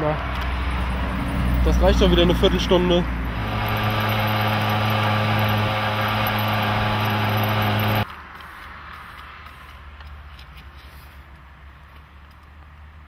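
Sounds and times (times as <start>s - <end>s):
road and wind noise: 0.0s - 13.0s
small two-stroke engine running: 1.7s - 8.0s.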